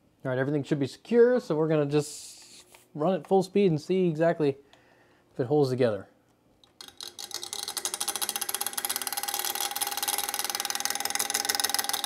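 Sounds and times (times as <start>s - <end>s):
fan whining: 6.8s - 12.0s
plastic gears clattering: 6.8s - 12.0s.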